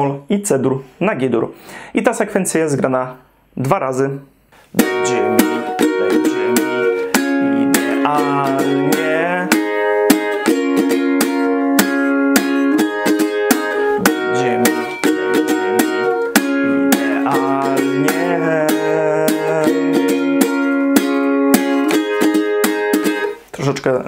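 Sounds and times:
ukulele strumming: 0:04.8 - 0:23.7.

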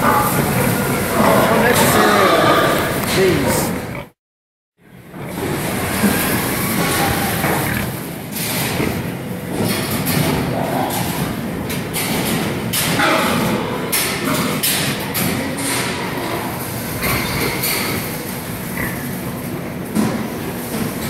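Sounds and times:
pigs calling: 0:00.0 - 0:04.2, 0:05.1 - 0:09.0
pigs squealing: 0:00.0 - 0:04.2, 0:05.2 - 0:08.1.

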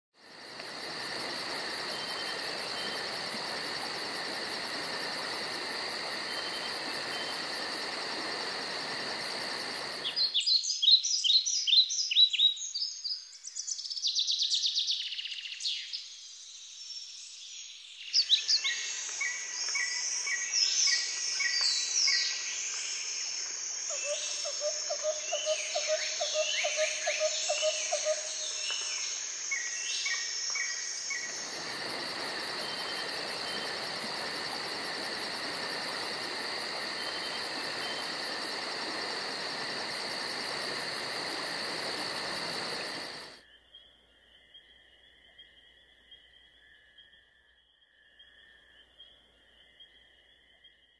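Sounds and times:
insect chorus with high tones: 0:00.2 - 0:50.9.

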